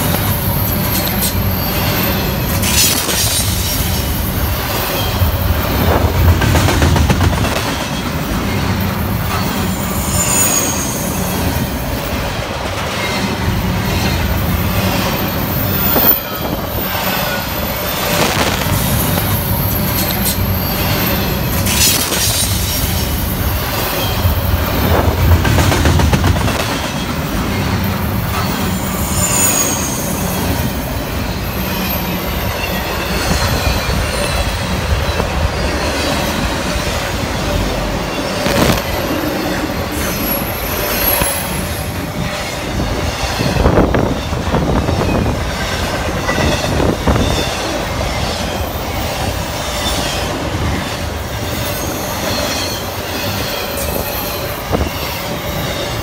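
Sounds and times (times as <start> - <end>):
clickety-clack over rail joints: 0.0 - 56.0
freight train wheels rumbling on rails: 0.0 - 56.0
high-pitched wheel squeals: 28.3 - 30.6.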